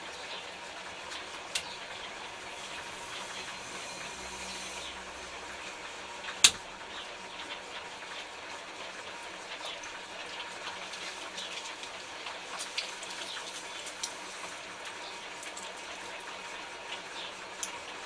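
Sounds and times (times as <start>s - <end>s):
wet clay hissing on wheel: 2.4s - 5.5s.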